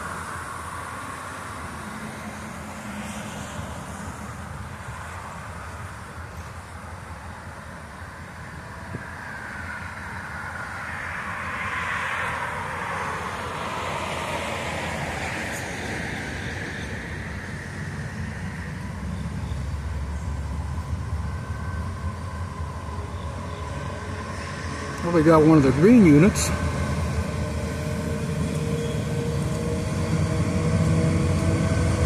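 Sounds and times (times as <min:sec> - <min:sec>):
broad rushing noise: 0:00.0 - 0:32.0
freight train approaching: 0:00.0 - 0:32.0
low diesel engine rumble: 0:15.9 - 0:32.0.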